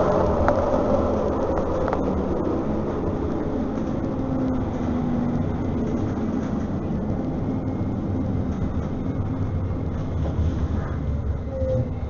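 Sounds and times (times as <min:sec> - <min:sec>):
tram interior rumble: 0:00.0 - 0:12.0.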